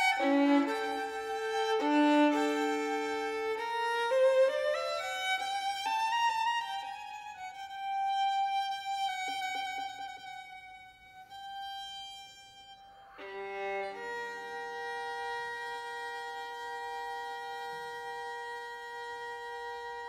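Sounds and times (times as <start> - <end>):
fuller lower notes: 0.0 - 5.4
solo violin: 0.0 - 20.0.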